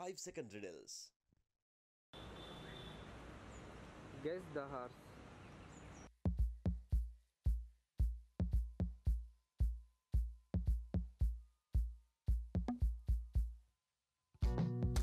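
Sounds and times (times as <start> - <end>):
deep drum beat: 6.2 - 13.6.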